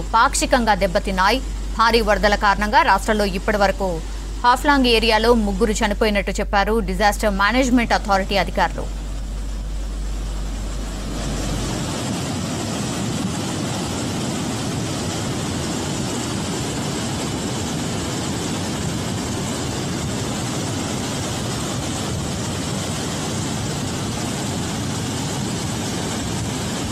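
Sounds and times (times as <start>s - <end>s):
floodwater rushing: 8.4s - 26.9s.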